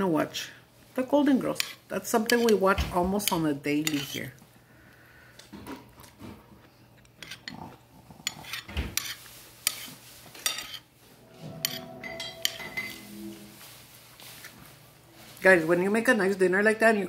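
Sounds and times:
fork clinking on plate: 0:11.5 - 0:13.2.

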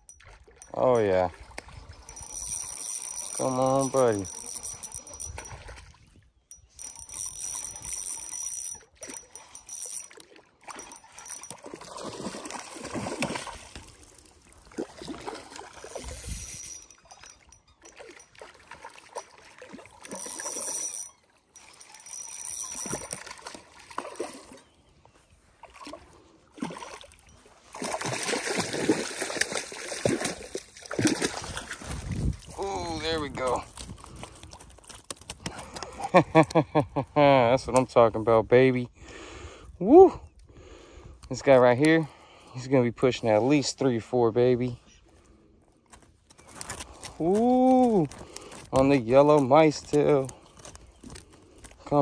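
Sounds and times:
fish splashing in water: 0:10.1 - 0:16.3, 0:25.6 - 0:31.9.

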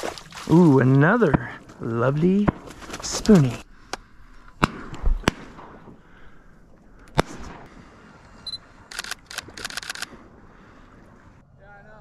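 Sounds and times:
shotgun shot: 0:07.2 - 0:07.7
sharp clicks: 0:08.5 - 0:10.2.

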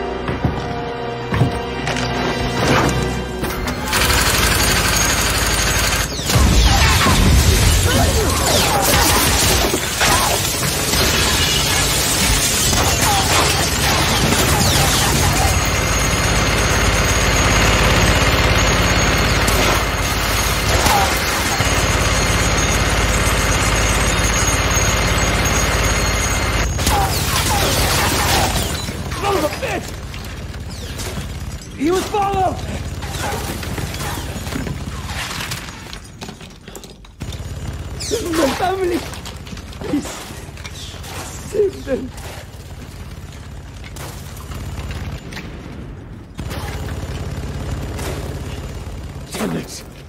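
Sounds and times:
debris crashing: 0:01.3 - 0:49.8
gatling gun firing: 0:03.7 - 0:24.7, 0:26.0 - 0:30.0
glass shattering: 0:06.2 - 0:16.1.

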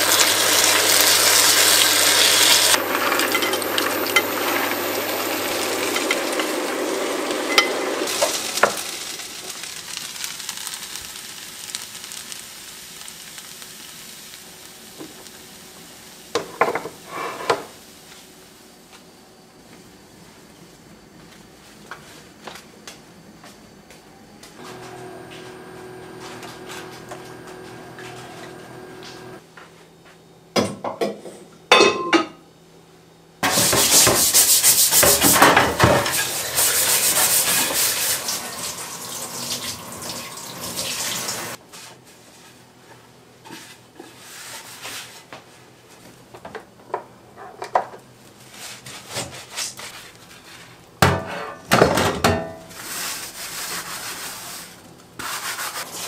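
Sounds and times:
dishes clinking: 0:30.6 - 0:32.4
sponge scrubbing metal colander: 0:33.4 - 0:41.5, 0:52.8 - 0:56.0
tap water running: 0:33.4 - 0:41.6.

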